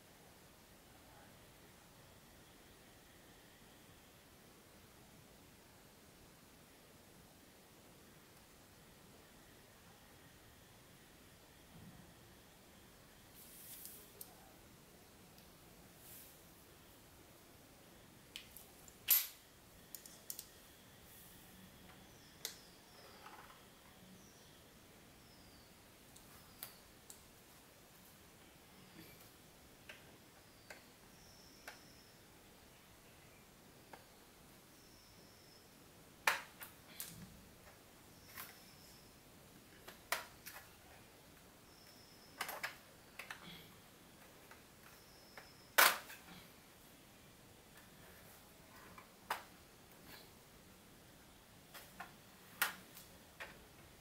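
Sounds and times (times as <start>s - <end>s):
plastic laptop cover clicks and snaps: 45.8s - 46.2s.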